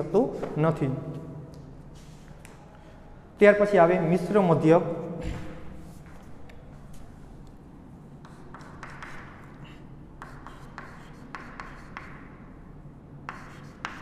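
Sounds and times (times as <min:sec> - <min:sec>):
faint room hum: 0:00.0 - 0:14.0
chalk writing on chalkboard: 0:08.2 - 0:12.4, 0:13.3 - 0:14.0.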